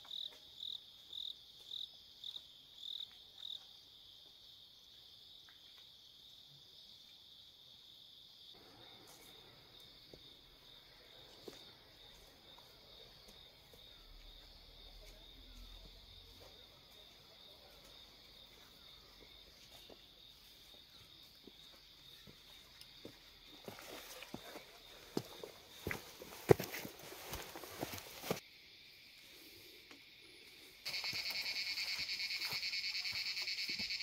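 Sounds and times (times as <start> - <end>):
insects chirring: 0.0 - 34.0.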